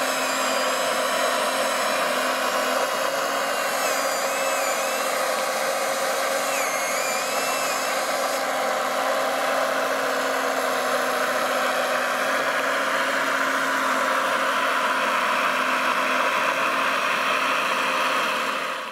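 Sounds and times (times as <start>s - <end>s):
model excavator whirring: 0.0s - 18.9s.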